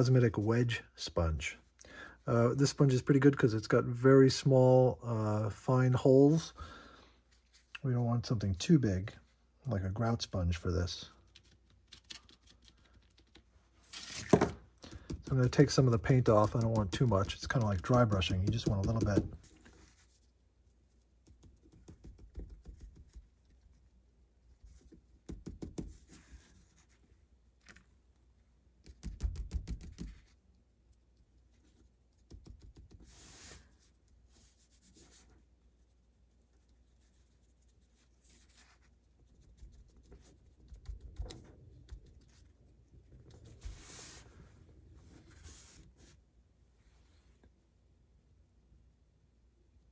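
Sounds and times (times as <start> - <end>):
sponge tapping and scratching: 14.8 - 20.0, 21.2 - 23.7, 24.7 - 26.9, 28.8 - 30.4, 31.8 - 33.5, 38.3 - 42.6.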